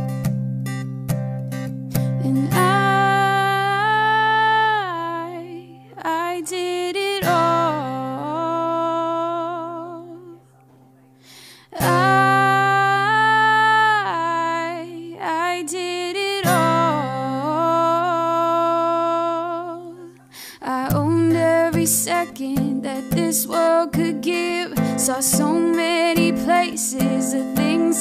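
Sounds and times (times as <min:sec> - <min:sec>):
pop song with wordless singing: 0:02.0 - 0:10.4, 0:11.6 - 0:28.0.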